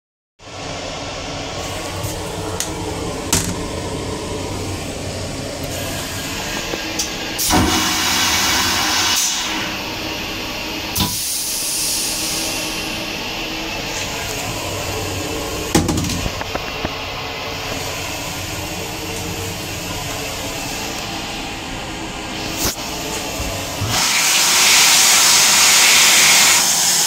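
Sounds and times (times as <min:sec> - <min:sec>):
toilet flushing rushing hiss: 0:00.4 - 0:27.0
toilet flush click: 0:06.5 - 0:09.8.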